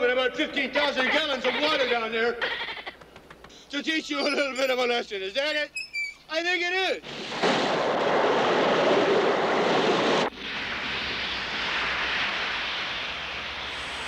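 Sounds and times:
sprinkler jets spraying water: 7.0s - 14.0s
water rushing into a burrow: 7.0s - 14.0s.

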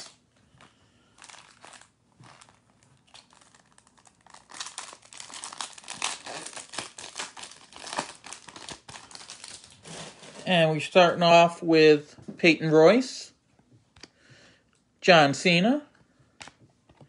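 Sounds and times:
foil wrapper tearing and crinkling: 1.2s - 10.5s.

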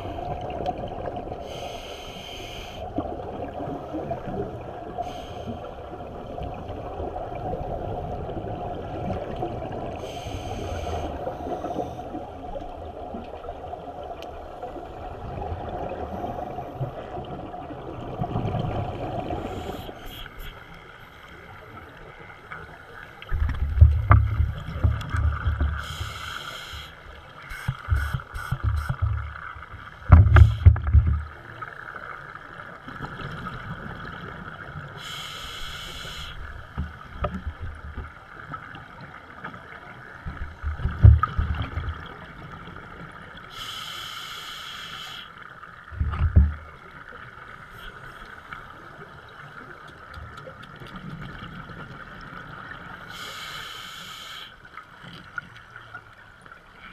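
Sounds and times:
regulator inhalation hiss: 1.4s - 2.9s, 5.0s - 5.8s, 10.0s - 12.2s, 25.8s - 28.9s, 35.0s - 36.5s, 43.5s - 45.4s, 53.1s - 54.6s
exhaled bubbles rumbling: 11.2s - 19.8s, 23.2s - 26.0s, 40.0s - 43.2s.

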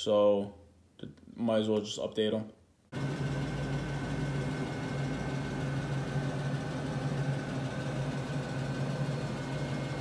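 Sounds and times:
motor humming: 3.0s - 10.0s.

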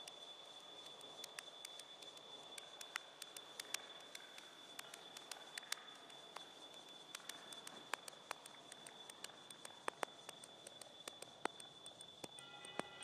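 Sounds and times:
irregular clicks and crackles: 0.0s - 13.0s
faint high-pitched tone: 12.2s - 13.0s.

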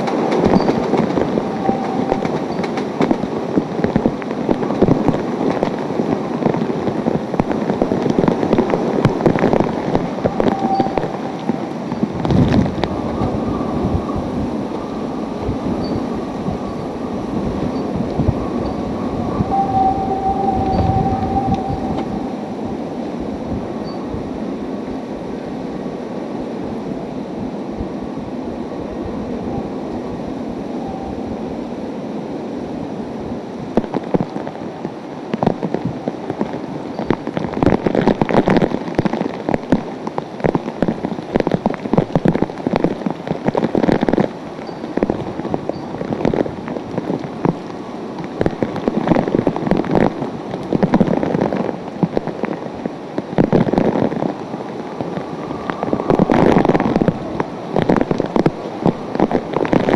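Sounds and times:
crackling hits on microphone: 0.0s - 16.0s, 33.7s - 59.9s
driving rain: 0.0s - 59.9s
hurricane-force wind: 0.0s - 59.9s.

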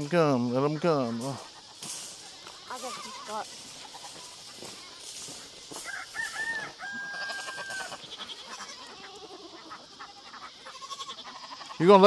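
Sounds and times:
rooster crowing: 5.2s - 8.6s.

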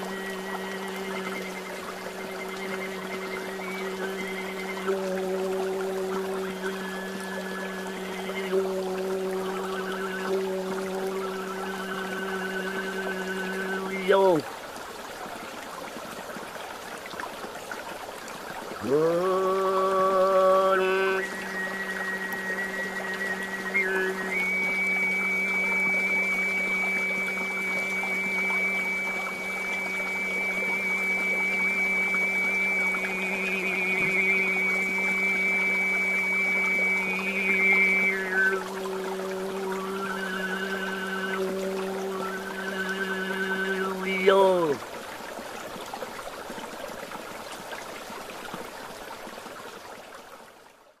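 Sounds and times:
throat singing drone with overtone: 0.0s - 14.4s, 18.8s - 44.8s
small water splashes: 0.0s - 51.0s
stream water rushing: 0.0s - 51.0s.

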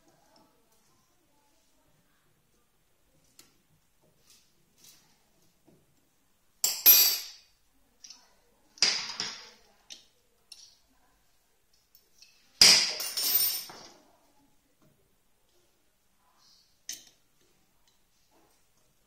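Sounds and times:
metal tools clinking: 6.6s - 7.4s.

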